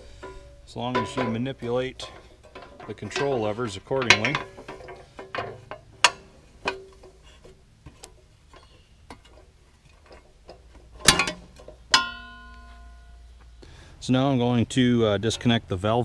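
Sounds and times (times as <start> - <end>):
metal panel clang ringing: 0.0 - 7.2, 10.0 - 13.2
light clicks and knocks on metal: 0.2 - 13.5.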